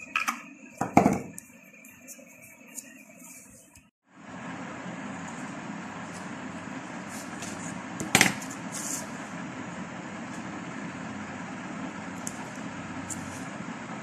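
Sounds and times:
steady low hum: 4.1 - 14.0.

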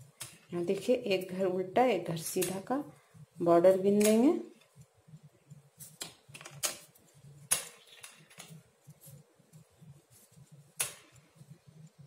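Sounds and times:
knitting needles clicking: 2.2 - 2.7
soft rustle of yarn: 8.6 - 12.0.

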